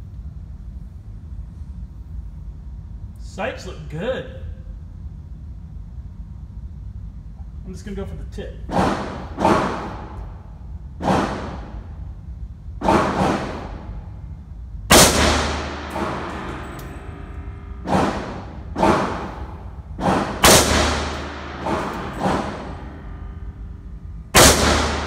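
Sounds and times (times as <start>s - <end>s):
rifle shots echoing indoors: 8.7s - 12.2s, 12.8s - 14.3s, 14.9s - 25.0s.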